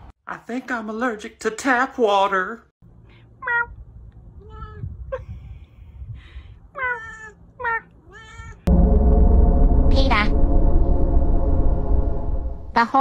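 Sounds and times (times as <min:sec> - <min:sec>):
cat meowing: 0:06.8 - 0:08.7.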